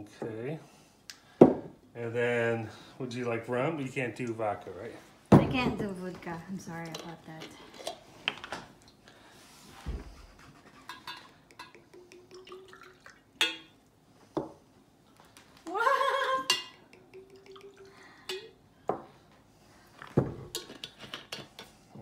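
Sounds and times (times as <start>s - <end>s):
glasses clinking: 10.8s - 13.8s, 16.4s - 18.6s
liquor pouring into glass: 11.9s - 13.7s.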